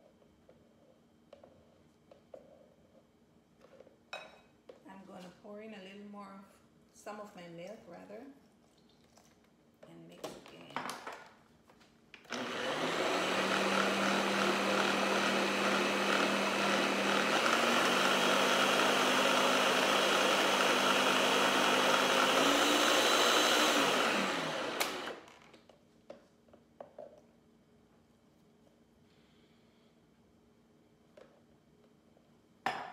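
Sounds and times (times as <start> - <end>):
blender motor running: 12.3 - 25.4.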